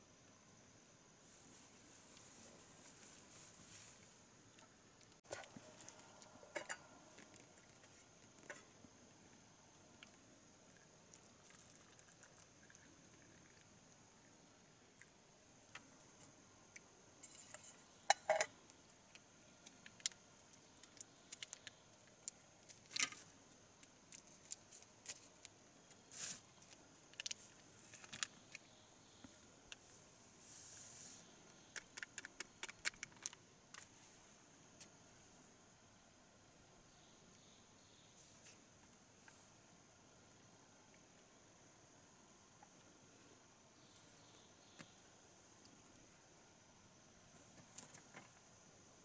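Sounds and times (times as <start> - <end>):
tableware clicking and tapping: 18.1 - 18.5
plastic packet crinkling: 31.9 - 33.4.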